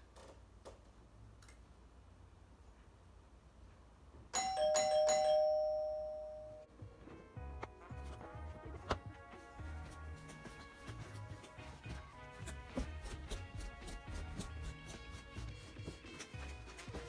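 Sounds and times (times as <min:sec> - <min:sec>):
doorbell ding-dong chime: 0:04.4 - 0:06.7
music: 0:06.6 - 0:17.0.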